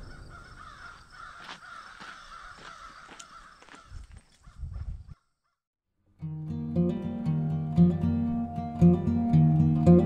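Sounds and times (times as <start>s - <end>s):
birds cawing: 0.0s - 5.6s.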